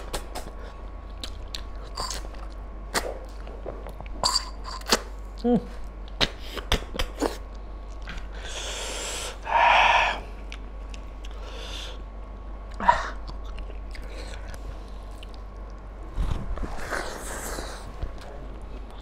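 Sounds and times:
wet chewing and lip-smacking: 0:00.0 - 0:04.2, 0:12.7 - 0:15.9
loud hissing breath: 0:08.4 - 0:10.3.

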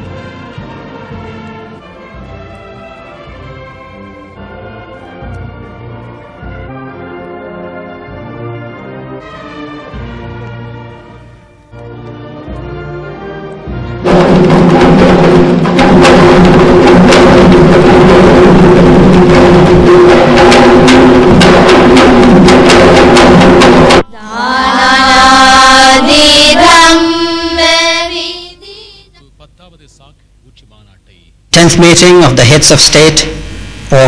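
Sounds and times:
fast drumming: 0:13.7 - 0:24.0.

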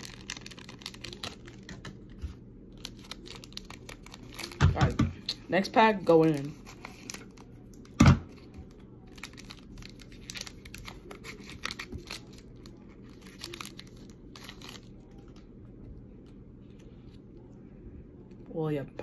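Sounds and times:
wrapper crinkling and tearing: 0:00.0 - 0:05.0, 0:06.3 - 0:15.4.

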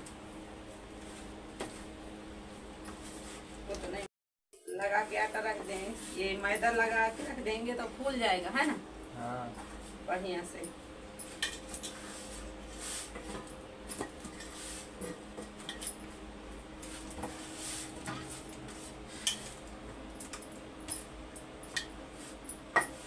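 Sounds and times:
faint hum: 0:04.7 - 0:23.0.

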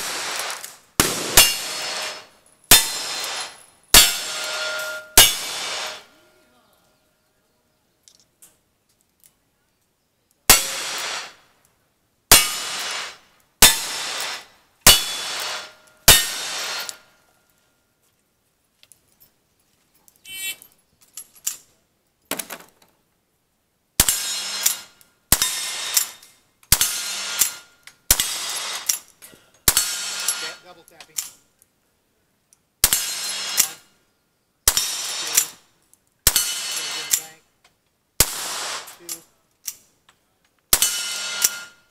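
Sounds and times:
rifle shots: 0:00.0 - 0:06.2, 0:10.5 - 0:11.4, 0:12.3 - 0:17.0, 0:24.0 - 0:28.9, 0:34.7 - 0:35.6, 0:38.2 - 0:39.1
revolver shots with echo: 0:01.0 - 0:03.4
metallic ring of steel targets: 0:01.1 - 0:06.2, 0:10.5 - 0:11.1, 0:14.9 - 0:17.1, 0:24.0 - 0:31.4, 0:36.3 - 0:37.4, 0:40.7 - 0:41.9.

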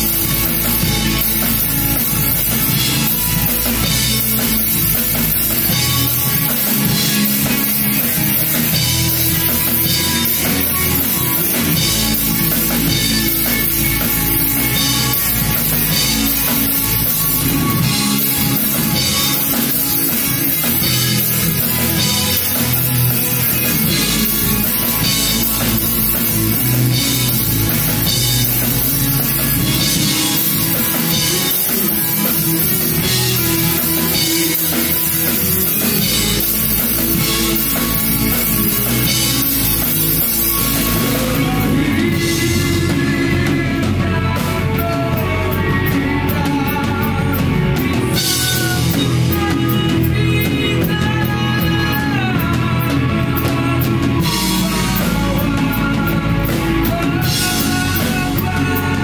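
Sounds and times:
bass guitar: 0:00.0 - 0:59.0
distorted electric guitars: 0:00.0 - 0:59.0
drum kit: 0:00.0 - 0:59.0
guitar line with bent notes: 0:00.0 - 0:59.0.

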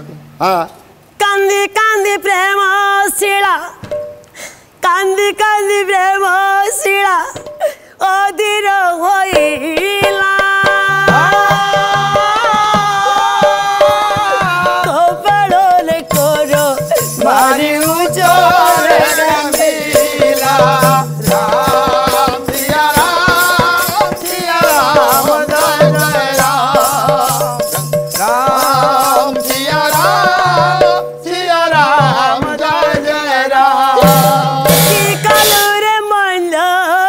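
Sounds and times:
woman singing: 0:01.2 - 0:03.8, 0:04.8 - 0:37.0
fast even percussion: 0:09.2 - 0:36.1.

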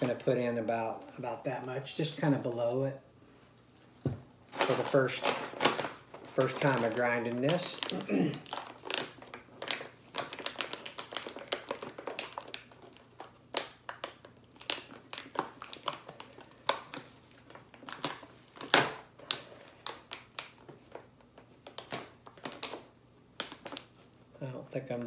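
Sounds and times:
paper bag crinkling: 0:04.5 - 0:21.0.

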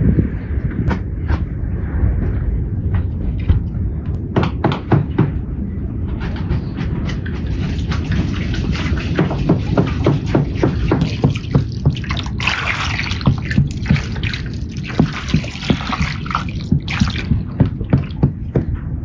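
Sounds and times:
steady low rumble: 0:00.0 - 0:19.0
water splashing over peppers: 0:07.4 - 0:18.2.

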